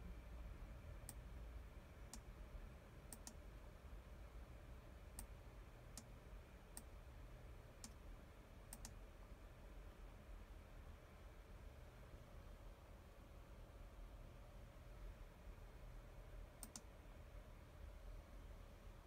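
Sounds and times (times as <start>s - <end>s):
sharp control clicks: 16.6s - 16.8s.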